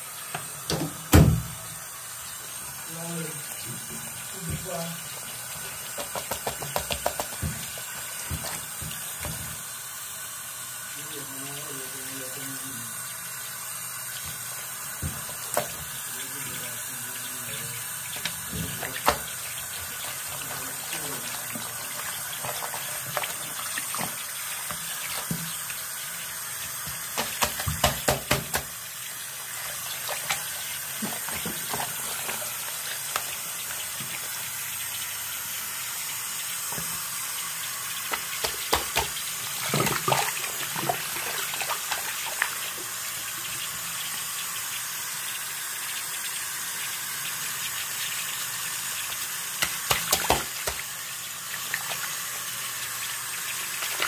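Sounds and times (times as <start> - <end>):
faucet running: 0.0 - 54.0
splashing and sloshing fabric: 38.1 - 42.6.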